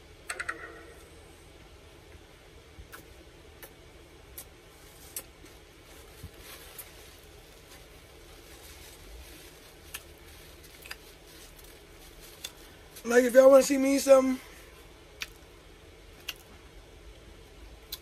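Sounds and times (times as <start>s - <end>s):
wet lip-smacks and clicks: 2.9s - 3.8s, 16.2s - 16.5s
person chewing: 10.7s - 11.0s, 16.2s - 16.5s.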